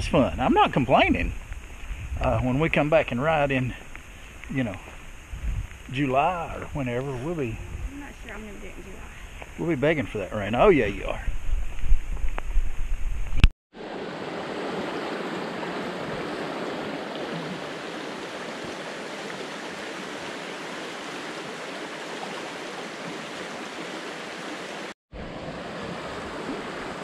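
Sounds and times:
loud microphone rumble: 1.0s - 2.8s
creek rushing over rocks: 13.8s - 27.0s.

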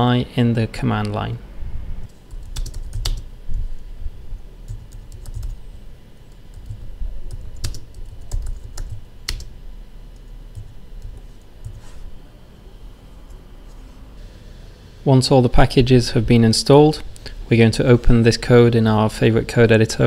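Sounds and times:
computer keyboard typing: 2.2s - 3.3s, 4.7s - 5.6s, 6.5s - 9.5s, 10.2s - 11.8s.

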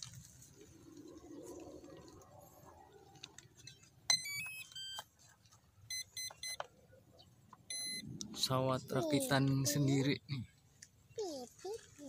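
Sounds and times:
quick electronic beeps: 7.7s - 8.2s.

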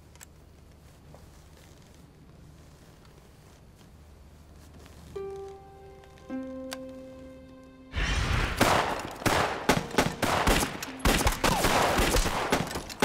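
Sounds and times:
dense gunfire: 8.0s - 13.0s.

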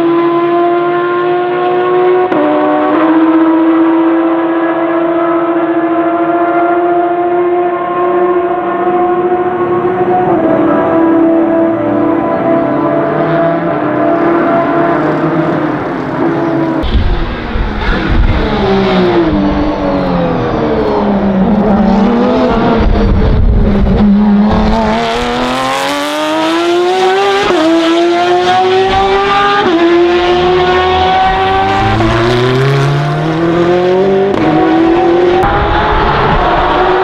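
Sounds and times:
race car engine revving: 0.0s - 37.0s.

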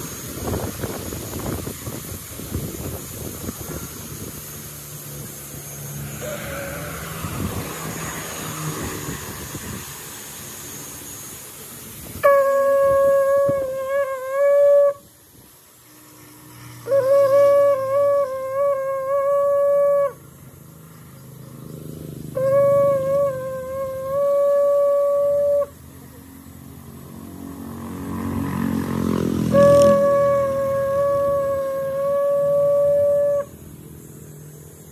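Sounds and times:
conch shell blasts: 12.2s - 15.2s, 16.8s - 20.2s, 22.3s - 25.8s, 29.4s - 33.7s.

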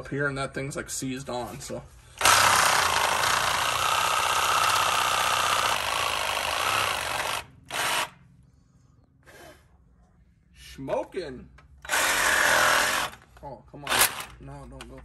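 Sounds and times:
power tool cutting steel bolt: 2.2s - 8.2s, 11.8s - 13.2s, 13.9s - 14.4s.

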